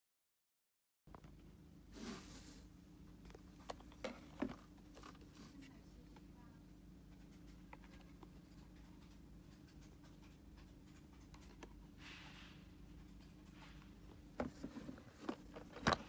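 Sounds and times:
low room hum: 0:01.1 - 0:16.0
soft brushing rustle: 0:01.9 - 0:02.8
plastic tester handling noise: 0:03.2 - 0:05.7, 0:14.3 - 0:16.0.

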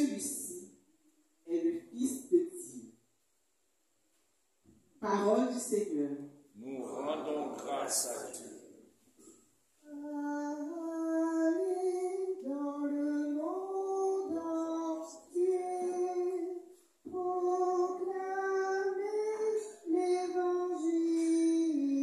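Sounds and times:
woman singing chant unaccompanied: 0:09.8 - 0:22.0.

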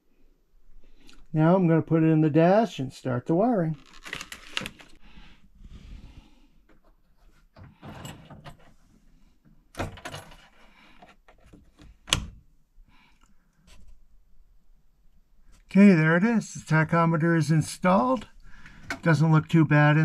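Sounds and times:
tool handling rustles and knocks: 0:06.7 - 0:08.8, 0:09.8 - 0:12.0.

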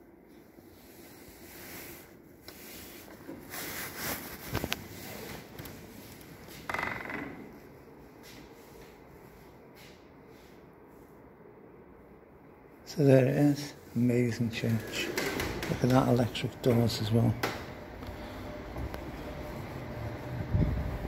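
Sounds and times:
wooden doors rubbing and scraping: 0:14.5 - 0:20.7.

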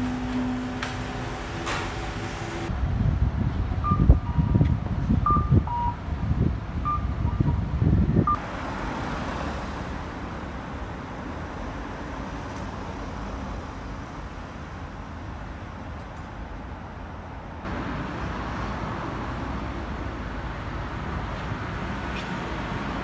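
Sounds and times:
city road traffic: 0:00.0 - 0:23.0
short electronic beeps: 0:03.8 - 0:06.0, 0:06.8 - 0:07.6.

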